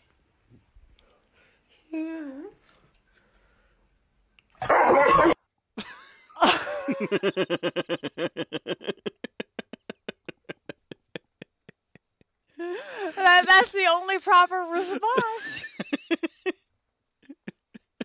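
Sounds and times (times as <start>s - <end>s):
dog barking: 4.6s - 5.4s
person laughing: 5.8s - 13.6s, 14.8s - 16.6s, 17.2s - 18.0s.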